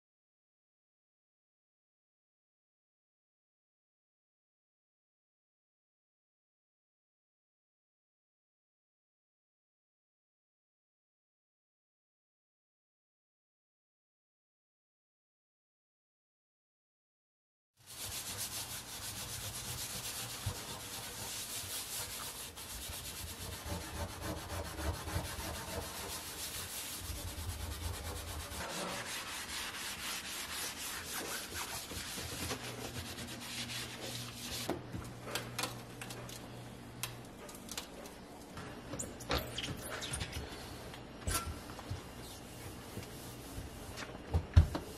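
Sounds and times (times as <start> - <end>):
scouring pad scrubbing enamel: 17.9 - 34.7.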